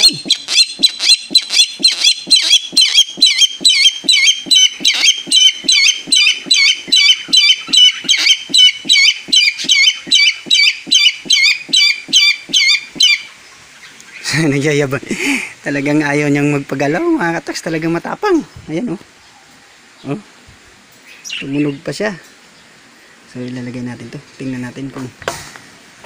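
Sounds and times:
bird calling harsh notes: 0.0s - 14.6s.

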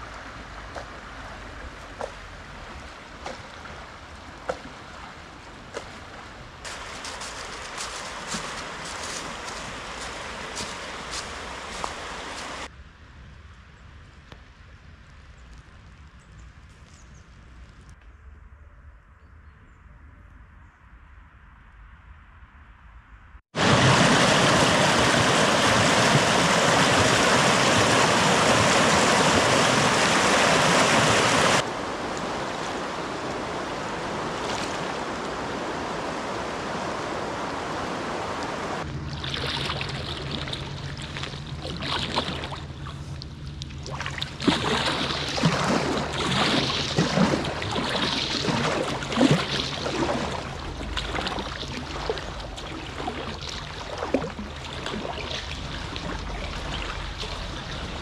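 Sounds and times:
river water rushing: 0.0s - 12.7s, 23.6s - 58.0s
water splashes: 0.0s - 12.7s, 23.6s - 58.0s
low steady hum: 31.3s - 58.0s.

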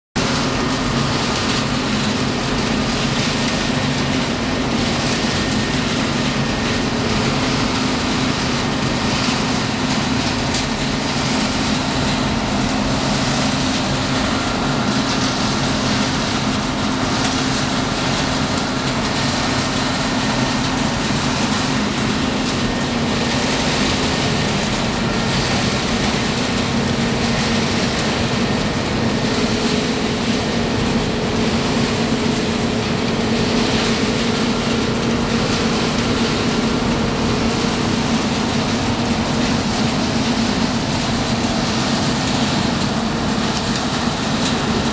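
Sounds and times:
extraction fans rushing air: 0.2s - 44.9s.

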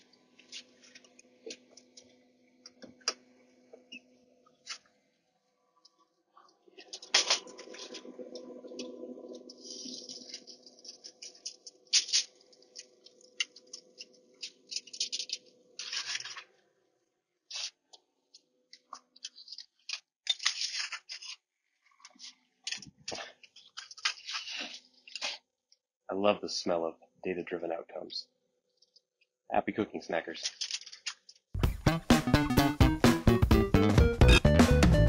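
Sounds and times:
low steady hum: 5.4s - 15.9s
foil crinkling: 9.5s - 16.6s, 19.2s - 25.4s.

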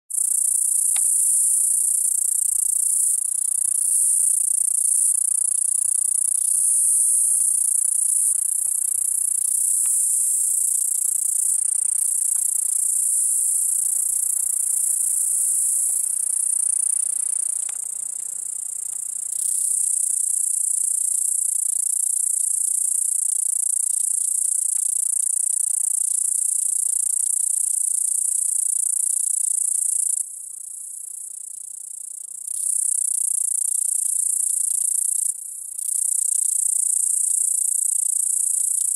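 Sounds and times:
cicada buzzing: 0.1s - 30.2s, 32.5s - 38.9s.

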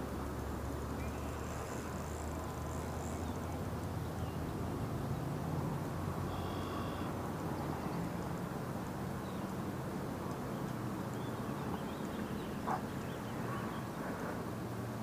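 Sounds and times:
faint high-pitched call: 6.3s - 7.1s.

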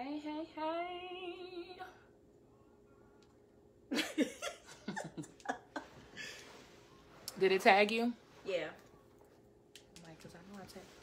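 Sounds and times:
women laughing: 3.9s - 6.4s.

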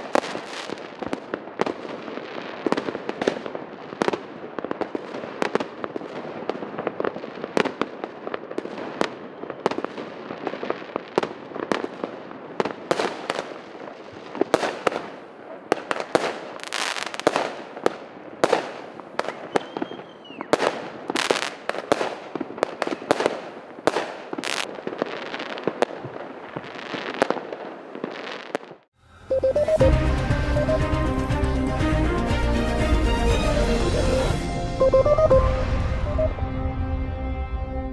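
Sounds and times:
fireworks bangs and crackling: 0.0s - 28.9s
firework whistle: 19.5s - 20.6s, 29.1s - 31.2s, 33.6s - 36.9s.

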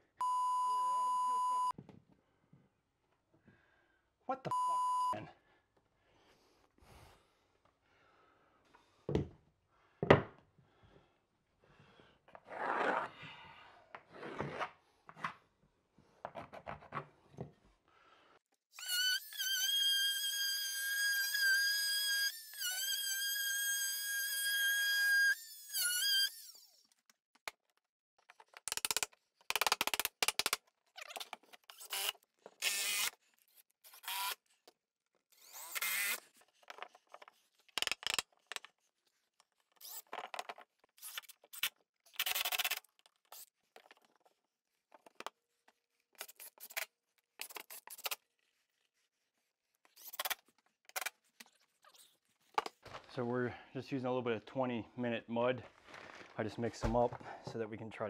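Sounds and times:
cordless drill whining: 18.7s - 26.8s, 31.7s - 33.2s, 33.9s - 34.4s, 35.3s - 36.3s.

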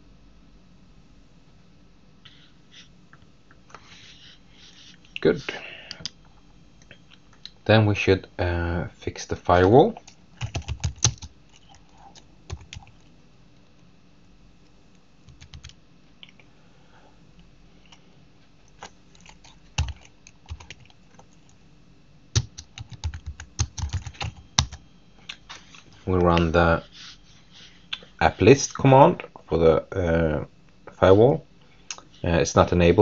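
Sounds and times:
computer keyboard typing: 10.0s - 13.1s, 15.3s - 15.8s, 18.8s - 21.4s, 22.4s - 24.8s.

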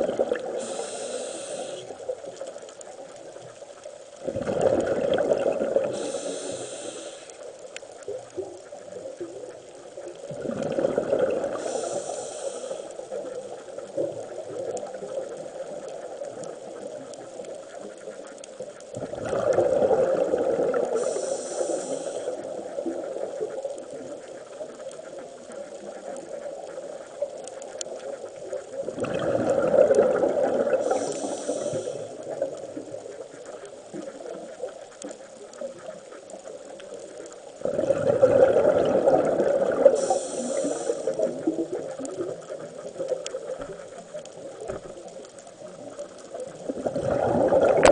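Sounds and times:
exhaled bubbles rushing: 0.0s - 0.6s, 4.2s - 6.2s, 10.2s - 11.7s, 19.0s - 21.0s, 28.8s - 31.0s, 37.6s - 42.6s, 46.6s - 47.9s
low steady hiss: 0.0s - 47.9s
regulator in-breath hiss: 0.4s - 2.2s, 5.8s - 7.6s, 11.5s - 13.2s, 20.8s - 22.6s, 30.7s - 32.4s, 39.7s - 41.4s.

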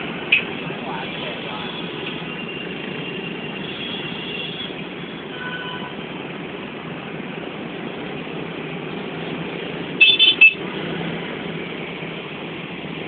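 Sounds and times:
motorbike traffic: 0.0s - 13.0s.

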